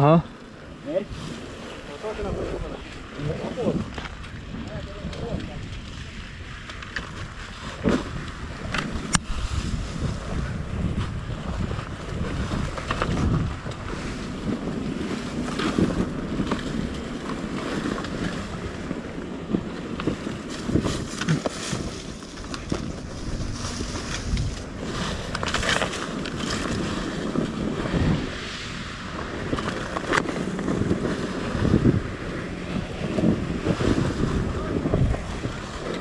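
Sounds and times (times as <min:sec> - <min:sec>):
wind on microphone: 0:00.0 - 0:36.0
motorbike engine running: 0:10.0 - 0:36.0.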